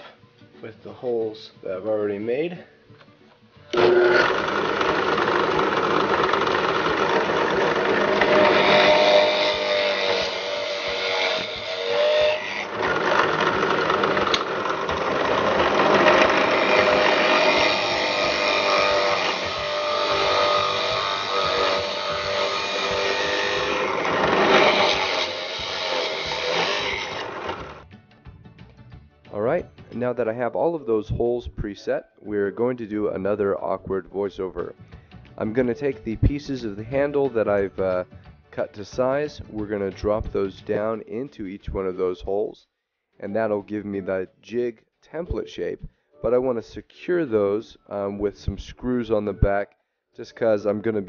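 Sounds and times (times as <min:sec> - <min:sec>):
drill press motor running: 0:03.7 - 0:27.8.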